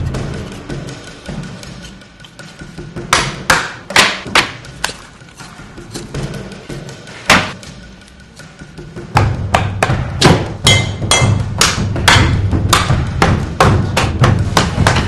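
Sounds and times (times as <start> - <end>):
cleaver chopping on wooden block: 3.0 - 5.0, 9.2 - 15.0.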